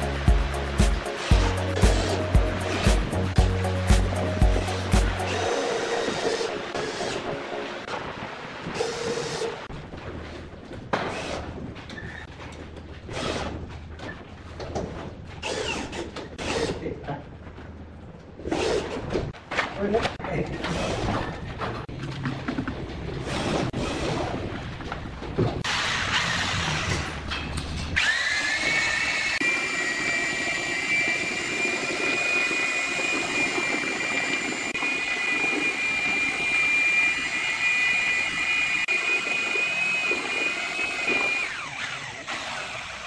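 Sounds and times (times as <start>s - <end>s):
drill mixer whining: 0.0s - 3.6s, 4.5s - 7.4s, 25.7s - 27.1s, 28.0s - 43.0s.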